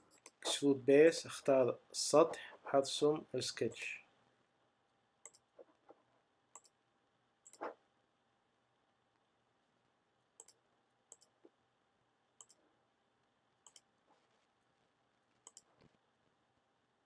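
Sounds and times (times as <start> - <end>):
computer mouse clicks: 5.2 - 5.7, 6.5 - 6.8, 7.4 - 7.8, 10.4 - 11.5, 12.4 - 12.6, 13.6 - 13.9, 15.4 - 16.0.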